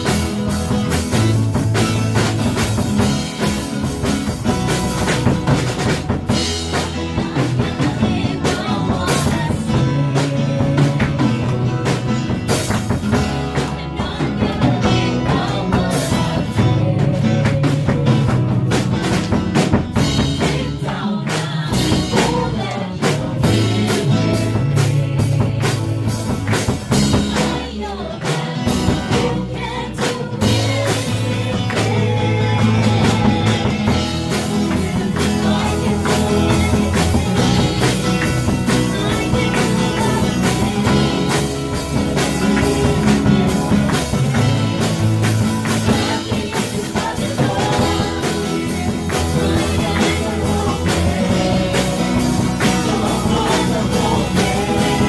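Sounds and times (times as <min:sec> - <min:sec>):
worship band playing: 0:00.0 - 0:55.0
woman singing into microphone: 0:05.5 - 0:55.0.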